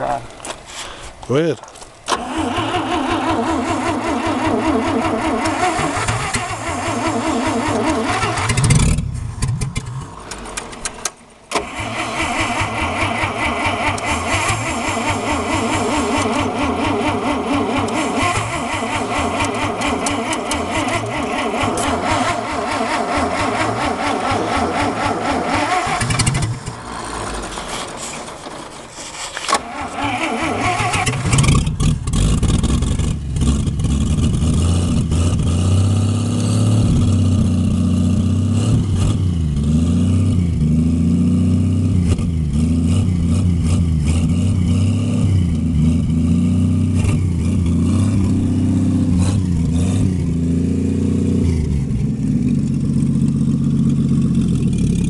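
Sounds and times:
engine cranking and firing: 2.0 - 55.0.

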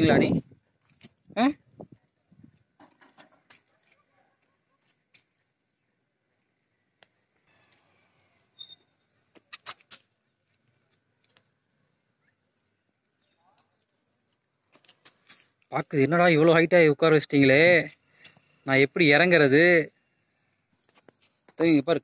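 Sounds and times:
faint high-pitched insect drone: 0.0 - 22.0
sharp clicks: 9.3 - 10.1.

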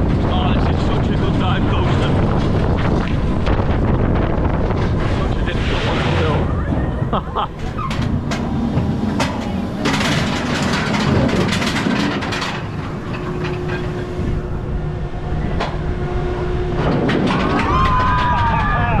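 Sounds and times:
roller coaster rumbling on track: 0.0 - 19.0
steady hum: 0.0 - 19.0
wind on microphone: 0.0 - 19.0.

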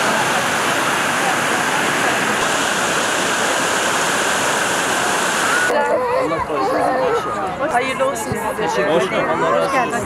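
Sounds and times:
river rushing over rapids: 0.0 - 5.7.

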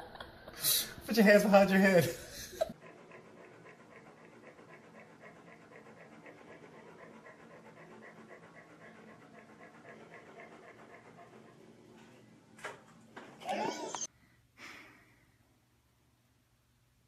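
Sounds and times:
animal panting: 1.3 - 12.4.

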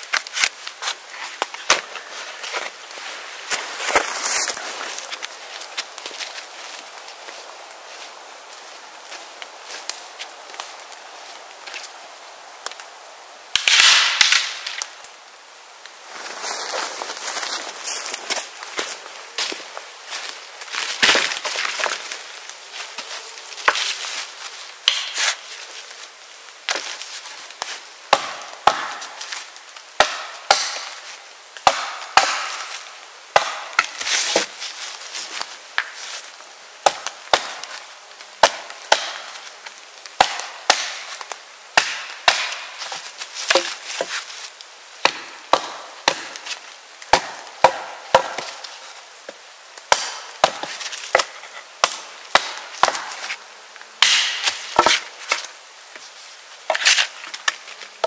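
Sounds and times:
axe chopping wood: 24.8 - 25.4, 28.1 - 29.0, 30.0 - 31.0, 31.6 - 32.7, 33.3 - 34.5, 36.8 - 37.7, 38.4 - 39.3, 40.2 - 41.2, 41.8 - 44.2, 45.0 - 46.5, 47.1 - 48.6, 49.9 - 53.3, 54.0 - 55.4.

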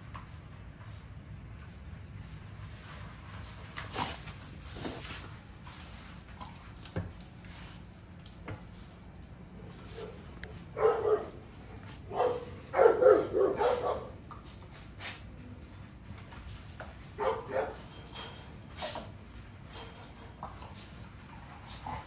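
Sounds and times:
dogs barking: 10.7 - 11.4, 12.1 - 14.2, 17.2 - 17.8.

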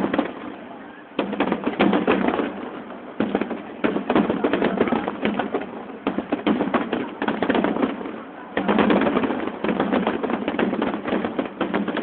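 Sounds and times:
firework crackling: 0.0 - 12.0
firework shells bursting: 1.2 - 12.0.

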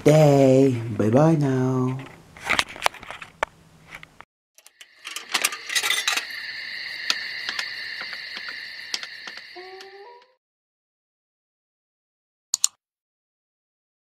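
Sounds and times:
steady high electric buzz: 5.0 - 10.1.

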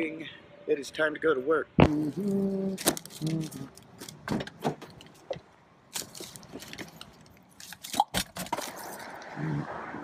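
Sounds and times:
rustling: 2.0 - 9.2.

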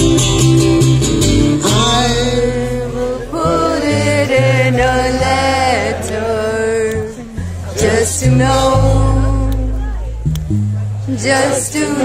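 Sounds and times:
strummed acoustic guitar: 0.0 - 11.3
steady bass: 0.0 - 12.0
person singing long notes: 1.6 - 10.2.

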